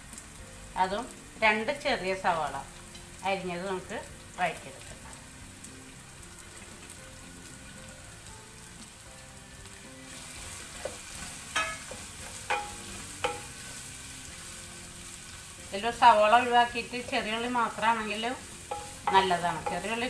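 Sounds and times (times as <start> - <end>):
onions sizzling in hot oil: 0.0 - 20.0.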